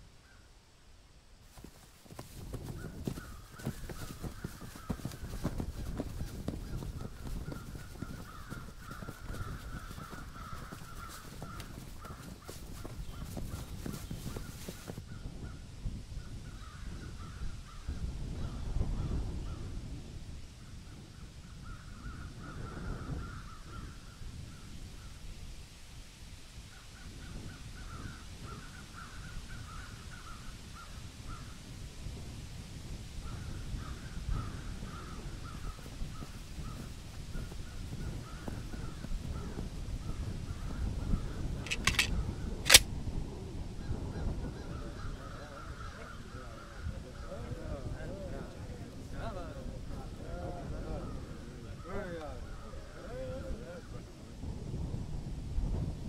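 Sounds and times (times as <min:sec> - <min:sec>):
low wind-like rumble: 0:00.0 - 0:56.0
birds calling: 0:01.5 - 0:15.0, 0:41.7 - 0:42.8
sharp clicks: 0:41.7 - 0:42.1, 0:42.7 - 0:42.9.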